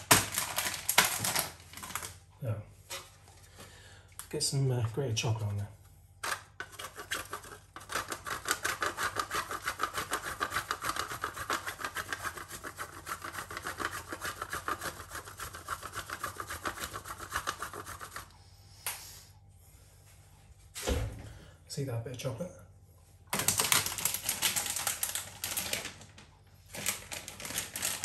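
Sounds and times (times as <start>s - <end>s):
chocolate scraping on a grater: 6.5s - 18.3s.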